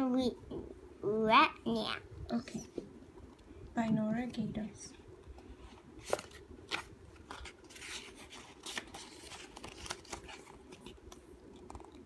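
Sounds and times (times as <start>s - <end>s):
book pages rustling: 5.3s - 12.0s.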